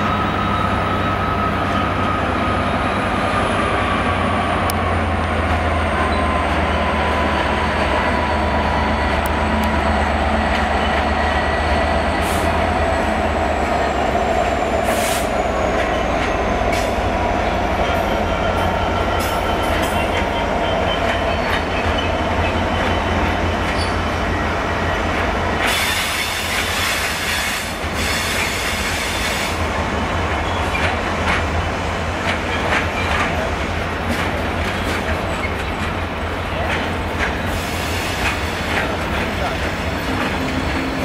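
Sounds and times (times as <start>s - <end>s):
freight train rumbling past: 0.0s - 41.0s.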